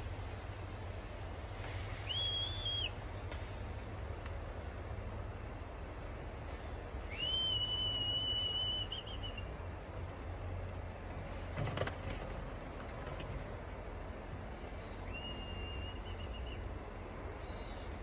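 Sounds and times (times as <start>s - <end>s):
person whistling a long high note: 2.0s - 2.9s, 7.1s - 9.4s, 15.1s - 16.4s
short clatter: 11.5s - 13.6s.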